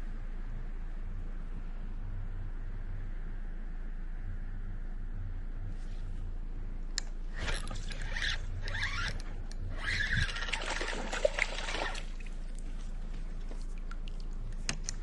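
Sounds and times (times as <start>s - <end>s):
sharp reel clicks: 7.0s - 10.7s
fishing reel handled scraping: 7.4s - 10.9s.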